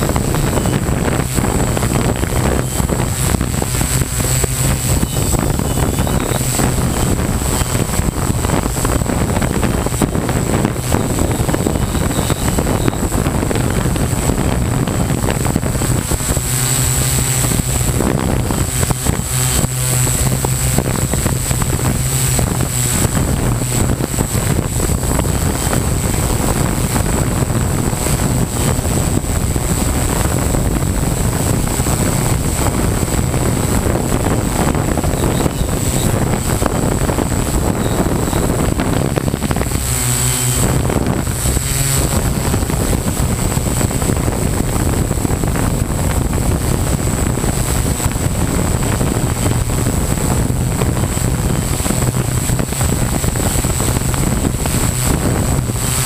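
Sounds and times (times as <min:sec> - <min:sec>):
drone motors and propellers whirring: 0:00.0 - 0:56.0.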